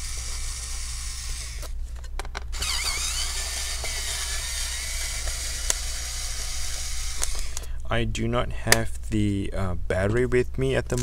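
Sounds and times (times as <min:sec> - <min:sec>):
electric screwdriver whirring: 0:00.0 - 0:01.7, 0:02.6 - 0:07.6.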